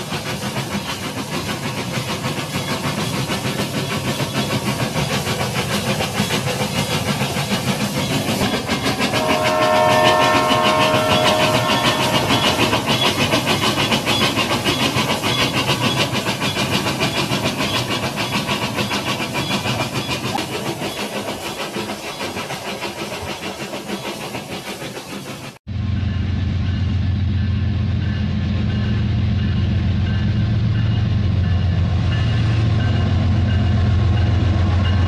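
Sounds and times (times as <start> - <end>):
toy train wheels clattering: 0.2 - 25.4
train whistle: 8.4 - 14.5.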